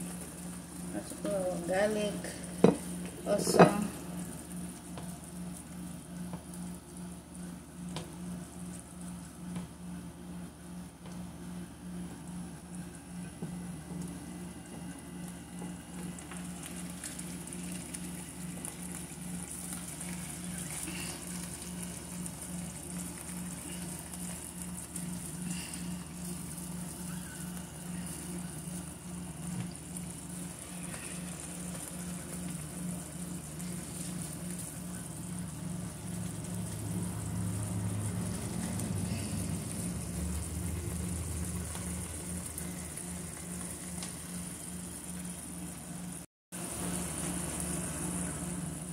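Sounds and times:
sauce sizzling in a frying pan: 16.0 - 48.9.

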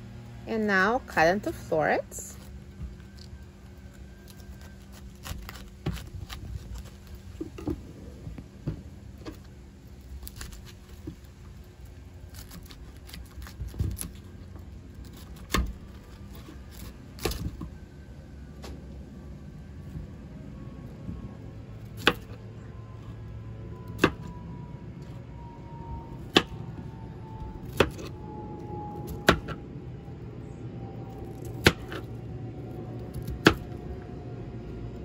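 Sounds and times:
low hum: 0.0 - 35.0
knife cutting cauliflower: 4.3 - 7.1.

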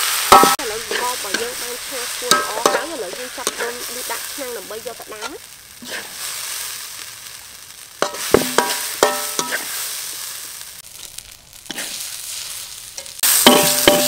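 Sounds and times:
rice sizzling in a wok: 0.0 - 14.0
metal spatula knocking on pot: 0.3 - 0.6, 2.3 - 3.6, 8.0 - 9.6, 13.5 - 14.0.

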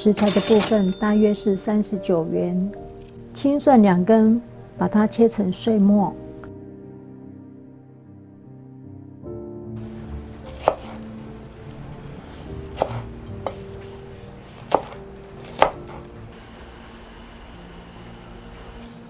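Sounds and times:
soft background music: 0.0 - 19.0
cleaver chopping on wooden board: 10.5 - 11.0, 12.7 - 13.6, 14.6 - 16.1.

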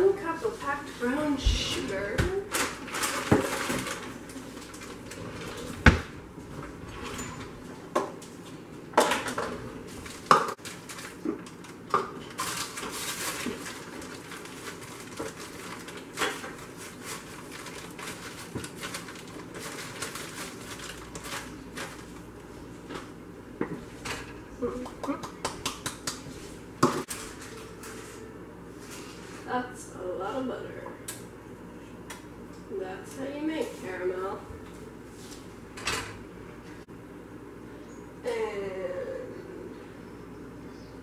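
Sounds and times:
kitchen utensils clattering: 2.5 - 4.2
plastic bag rustling: 2.5 - 6.8, 9.7 - 22.9.

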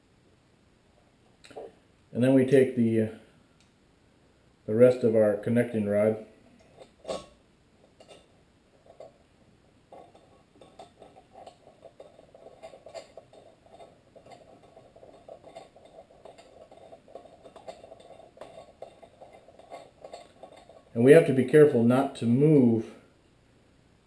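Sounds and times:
metallic clicking and scraping: 6.6 - 9.3, 9.9 - 22.3.

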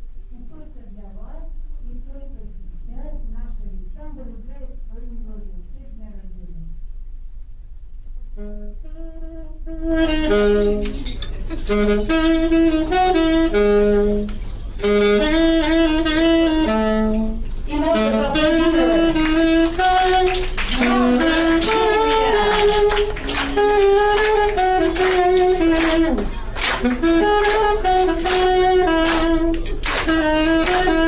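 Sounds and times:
saxophone melody: 8.3 - 31.0.

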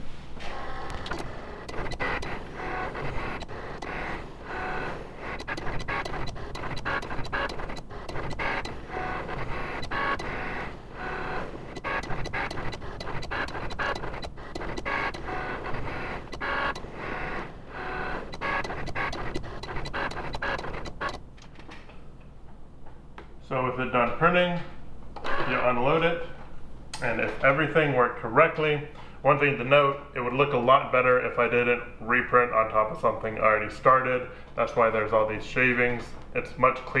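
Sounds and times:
cutting machine motors whining: 0.4 - 21.2
small mechanical clicks: 0.8 - 21.2.

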